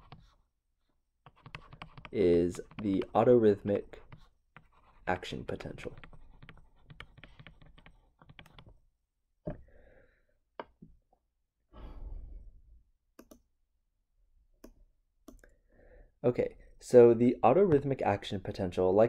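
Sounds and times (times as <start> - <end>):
stylus clicking on tablet screen: 1.2 - 3.2, 5.8 - 8.8, 13.2 - 13.5, 14.6 - 15.5
soft breath: 9.6 - 10.4, 11.7 - 12.6.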